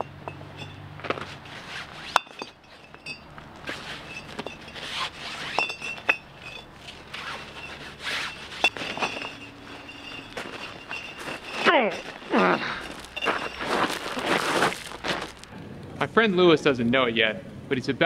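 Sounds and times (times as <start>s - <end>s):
bricks clinking together: 2.1s - 3.3s, 5.5s - 6.7s
cloth rustling: 6.7s - 15.5s.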